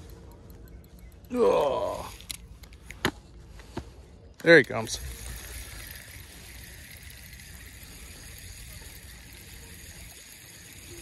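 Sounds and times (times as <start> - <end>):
fishing reel whirring: 4.5 - 11.0.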